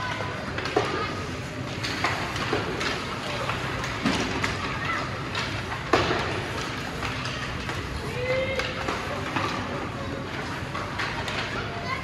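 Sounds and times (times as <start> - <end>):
hockey sticks and puck clacking: 0.0 - 12.0
steady noisy background: 0.0 - 12.0.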